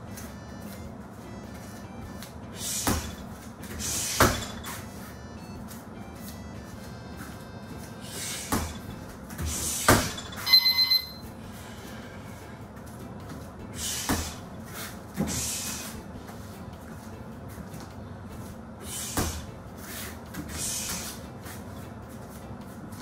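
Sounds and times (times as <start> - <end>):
punches thudding on heavy bag: 2.8 - 3.2, 3.8 - 4.6, 8.4 - 10.4
electronic timer beeps: 10.4 - 11.3.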